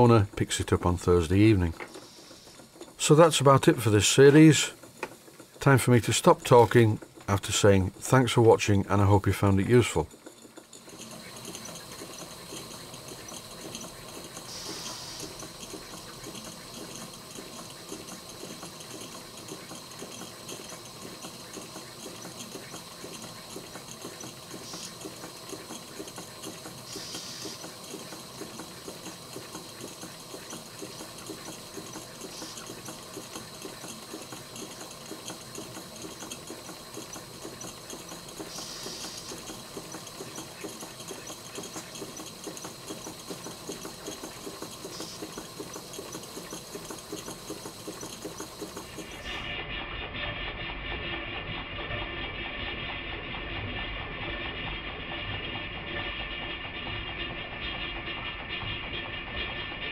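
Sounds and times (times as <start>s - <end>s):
continuous steam hiss: 0.0s - 10.2s, 10.9s - 49.8s
model steam engines clattering: 0.0s - 59.9s.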